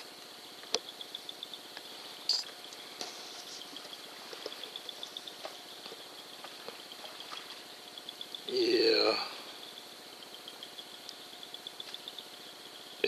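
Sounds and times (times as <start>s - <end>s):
high chirping night chorus: 0.0s - 13.0s
wild boar rooting and snuffling: 2.7s - 8.0s.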